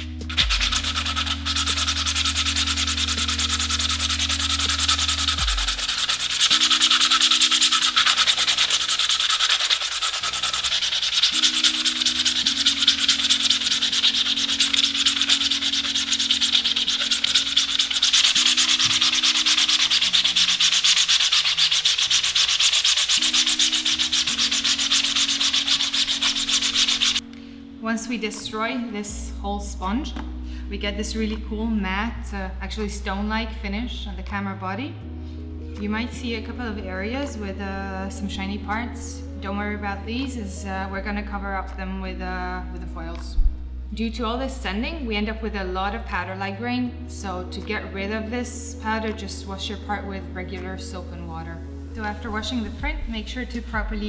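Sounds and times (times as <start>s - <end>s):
sanding sponge scratching plastic: 0.0s - 27.2s.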